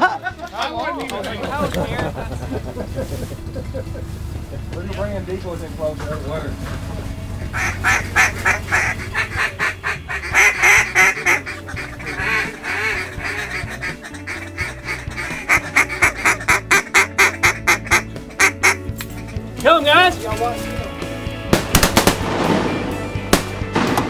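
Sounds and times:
duck quacking: 0:07.5 - 0:19.4.

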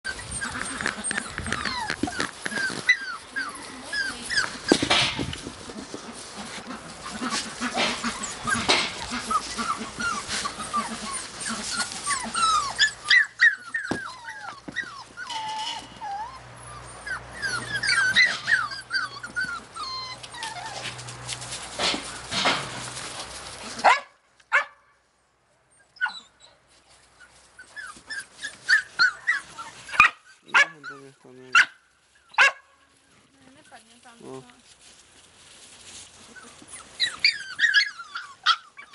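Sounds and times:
puppies whining and yipping: 0:00.0 - 0:21.1, 0:25.7 - 0:33.2, 0:35.8 - 0:38.9
puppies barking: 0:00.1 - 0:20.9, 0:23.6 - 0:24.8, 0:27.9 - 0:32.8, 0:36.2 - 0:38.9.

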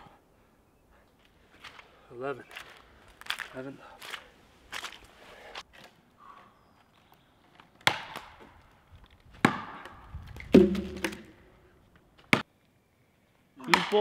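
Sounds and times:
axe chopping tree trunk: 0:07.8 - 0:08.4, 0:09.4 - 0:09.9, 0:10.5 - 0:11.3, 0:13.7 - 0:14.0.

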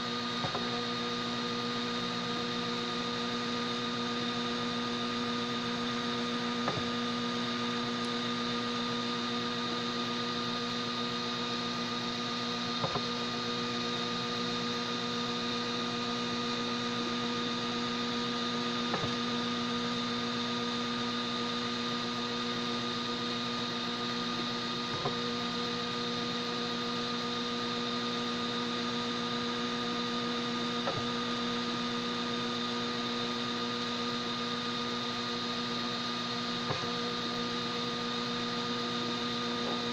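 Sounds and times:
printer electrical hum: 0:00.0 - 0:39.9.

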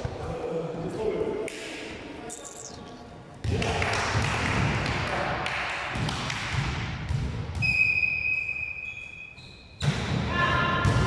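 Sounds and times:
volleyball game gym noise: 0:00.0 - 0:11.0
shrill whistle blown: 0:07.6 - 0:09.6.

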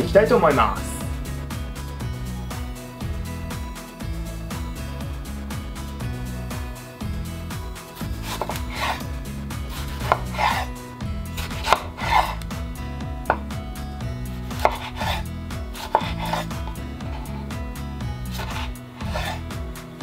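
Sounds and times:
knife slicing tomato: 0:08.0 - 0:09.0, 0:09.7 - 0:10.7, 0:11.4 - 0:12.6, 0:14.5 - 0:17.5, 0:18.3 - 0:19.4
knife tapping cutting board: 0:08.3 - 0:08.9, 0:10.0 - 0:10.7, 0:11.5 - 0:12.2, 0:14.6 - 0:15.2, 0:15.8 - 0:16.4.

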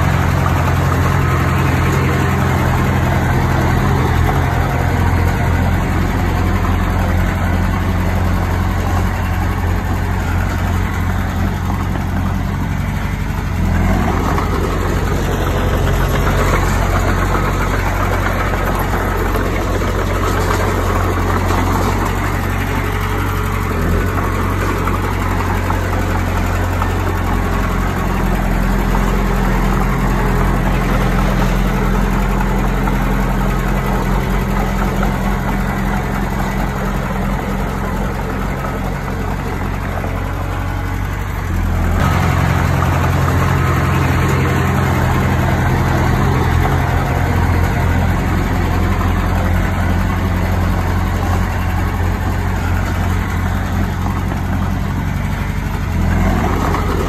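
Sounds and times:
bulldozer diesel engine running: 0:00.0 - 0:57.0.

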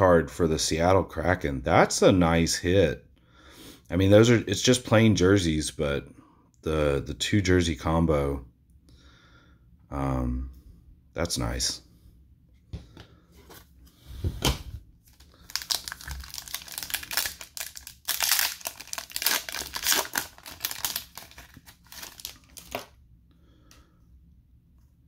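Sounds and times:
foil wrapper crinkling and tearing: 0:15.1 - 0:23.0.

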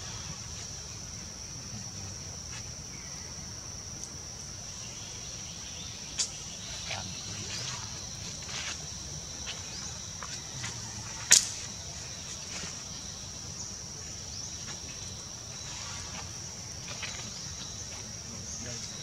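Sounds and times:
sharp loud click: 0:11.3 - 0:11.6.

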